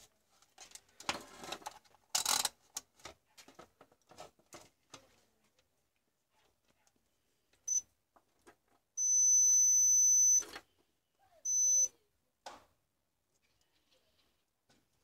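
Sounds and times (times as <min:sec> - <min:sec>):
multimeter continuity beeps: 0:07.7 - 0:07.9, 0:09.0 - 0:10.5, 0:11.4 - 0:12.0.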